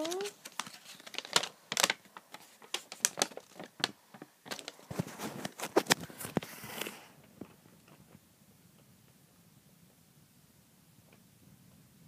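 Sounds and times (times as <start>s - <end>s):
paper crackling and clicking: 0.0s - 8.0s
paper rustle: 0.0s - 8.1s.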